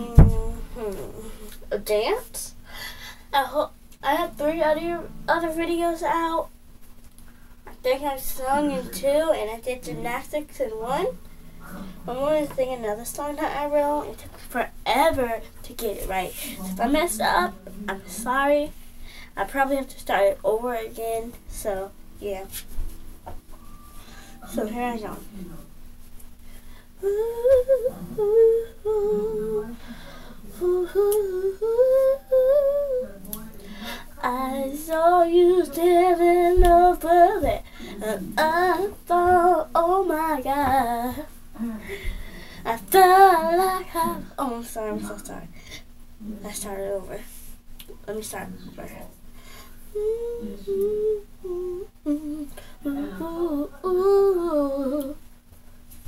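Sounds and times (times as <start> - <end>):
girl humming a melody: 0.0 - 1.7, 27.0 - 44.3, 49.9 - 55.2
girl singing wordless tune: 0.0 - 6.6, 7.6 - 22.8, 23.8 - 25.4, 26.5 - 55.2.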